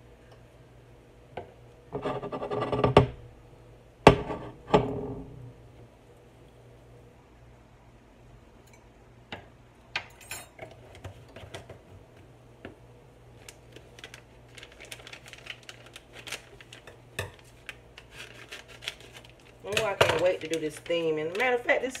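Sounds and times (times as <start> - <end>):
kitchen items clicking on countertop: 19.7 - 21.5.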